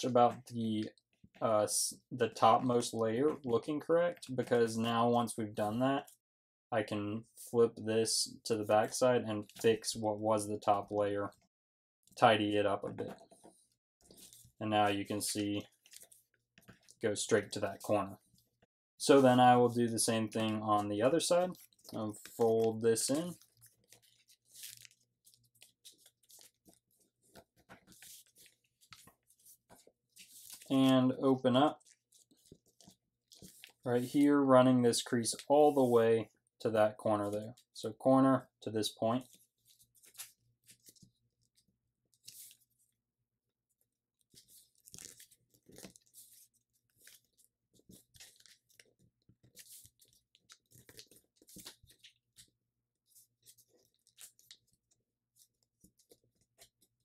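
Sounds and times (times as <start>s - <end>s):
paper crinkling as folded: 13.0s - 36.0s, 39.1s - 43.0s, 43.8s - 57.0s.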